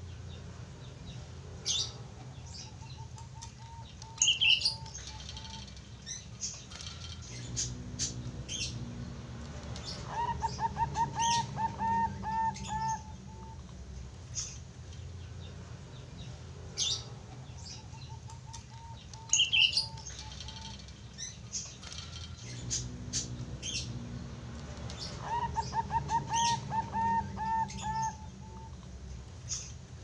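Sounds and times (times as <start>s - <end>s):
dove cooing: 10.1s - 13.6s, 25.2s - 28.8s.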